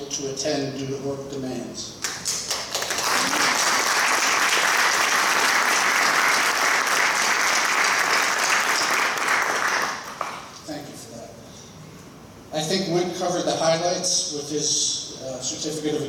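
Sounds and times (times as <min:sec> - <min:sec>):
people applauding: 0:02.0 - 0:10.5.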